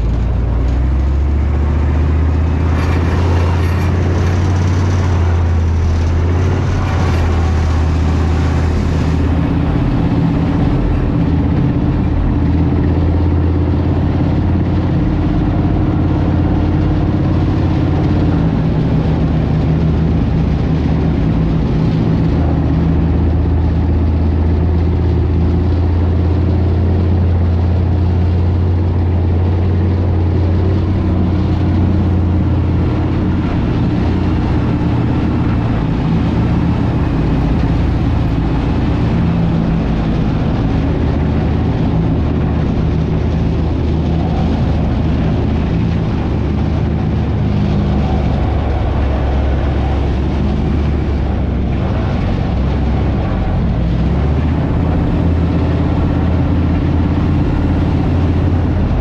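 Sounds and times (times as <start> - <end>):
tank diesel engine droning: 0.0 - 59.0.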